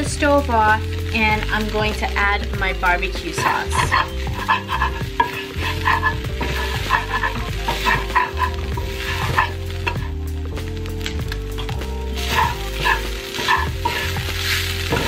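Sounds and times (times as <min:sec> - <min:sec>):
food sizzling: 0:00.0 - 0:15.0
metal spatula scraping skillet: 0:03.3 - 0:10.2, 0:12.1 - 0:15.0.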